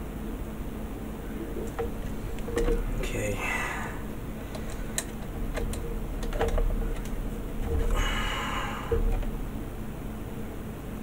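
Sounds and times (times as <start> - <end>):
plastic parts clicking and knocking: 1.4 - 3.1, 3.9 - 10.0.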